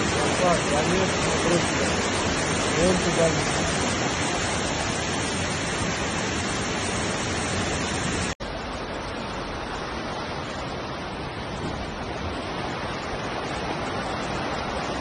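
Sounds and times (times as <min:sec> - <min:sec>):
floodwater rushing: 0:00.0 - 0:15.0.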